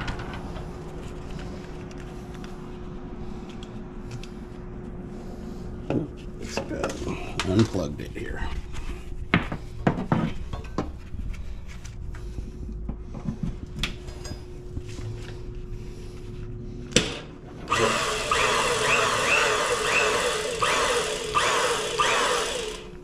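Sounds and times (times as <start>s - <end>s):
hydraulic pump running: 17.1s - 23.0s.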